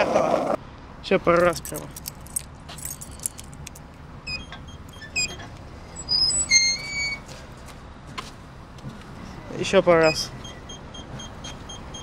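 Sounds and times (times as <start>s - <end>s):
skateboard squeaking: 6.0s - 7.3s.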